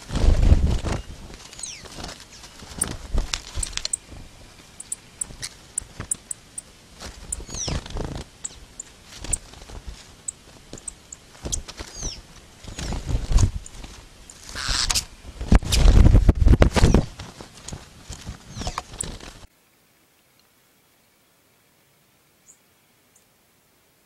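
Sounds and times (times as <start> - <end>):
small birds chirping: 0.7 - 15.4, 18.4 - 19.5
rustling in dry straw: 6.7 - 19.5.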